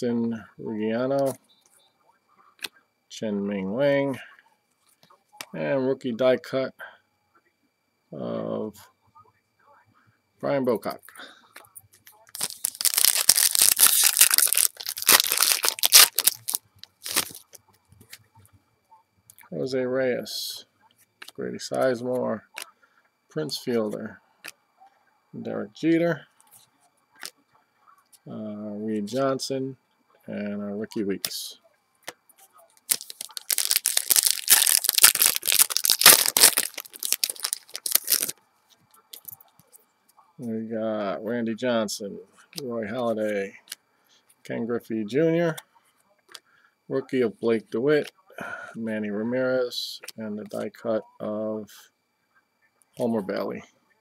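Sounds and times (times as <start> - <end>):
foil wrapper crinkling and tearing: 12.3 - 17.6, 32.8 - 38.4.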